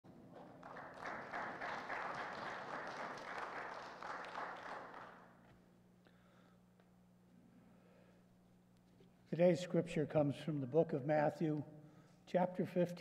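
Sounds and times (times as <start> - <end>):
congregation applauding: 0.2 - 5.4.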